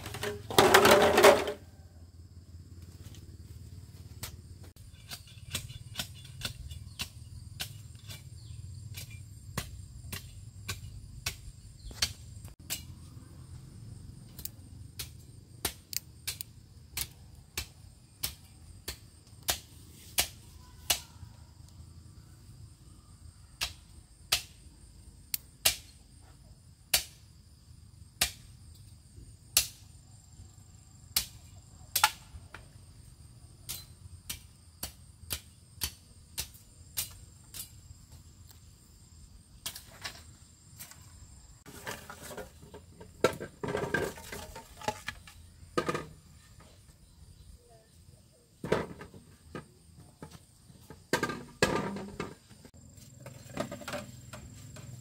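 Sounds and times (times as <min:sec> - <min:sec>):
rustling and scraping: 0:00.0 - 0:01.7, 0:39.6 - 0:46.9, 0:48.6 - 0:55.0.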